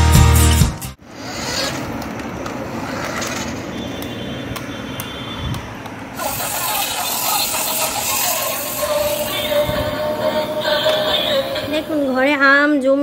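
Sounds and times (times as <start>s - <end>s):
toy car electric motor whirring: 1.1s - 4.2s, 6.2s - 11.4s.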